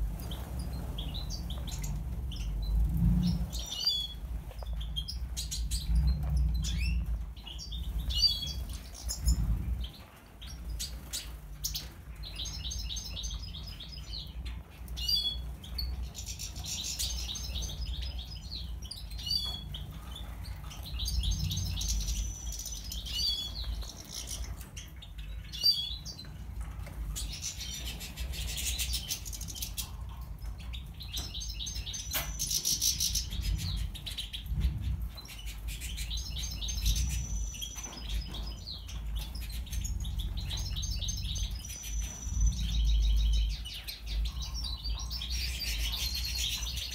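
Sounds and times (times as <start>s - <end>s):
low rumble: 0.0s - 10.1s
birds chirping and singing: 0.0s - 46.9s.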